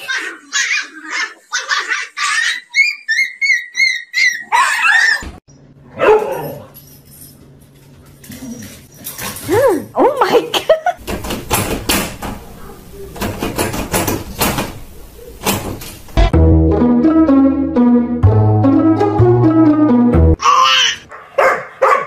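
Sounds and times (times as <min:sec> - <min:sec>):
dogs yipping and barking: 0:00.0 - 0:07.1, 0:08.2 - 0:09.6, 0:12.3 - 0:16.2, 0:20.4 - 0:22.0.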